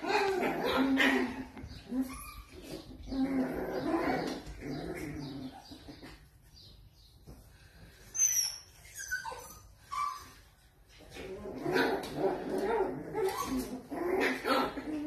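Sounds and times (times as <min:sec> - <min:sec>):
puppies squeaking: 0:00.0 - 0:06.2, 0:08.1 - 0:10.6, 0:12.6 - 0:15.0
puppies growling: 0:00.0 - 0:06.4, 0:10.9 - 0:15.0.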